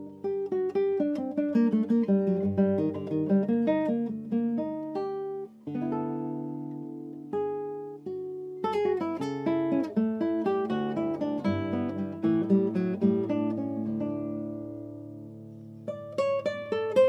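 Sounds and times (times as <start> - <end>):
acoustic guitar picking melody: 0.0 - 17.0.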